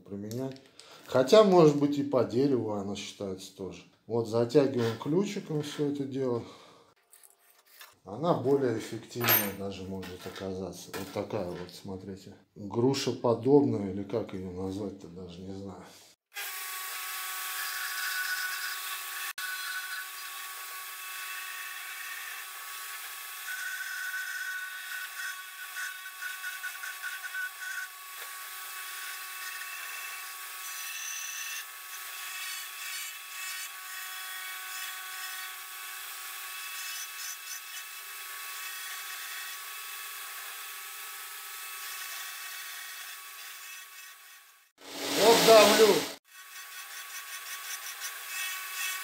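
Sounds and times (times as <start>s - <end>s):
rotary burr rasping wood: 17.6s - 49.0s
angle grinder motor whine: 44.8s - 46.2s.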